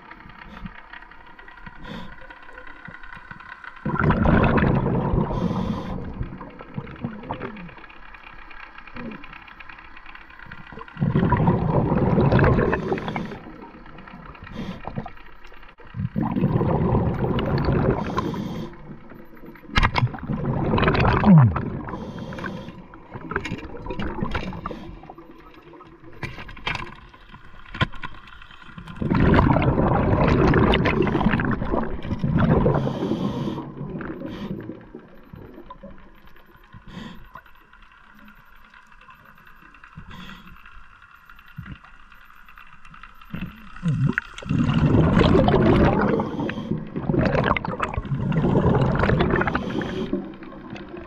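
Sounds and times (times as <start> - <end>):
diver breathing through regulator: 1.6 - 2.5, 5.0 - 6.6, 11.0 - 15.1, 17.7 - 19.3, 21.7 - 23.2, 24.4 - 25.2, 32.5 - 35.1, 36.8 - 37.5, 40.0 - 40.8, 43.8 - 50.4
bubbles rushing out: 3.8 - 7.8, 10.8 - 13.8, 15.9 - 18.3, 19.6 - 22.0, 23.1 - 24.7, 28.9 - 36.0, 43.8 - 51.0.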